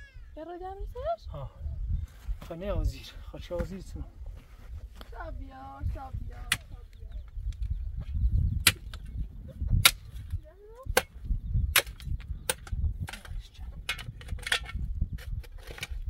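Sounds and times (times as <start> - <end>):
metal shovel striking stony ground: 10.8 - 16.0.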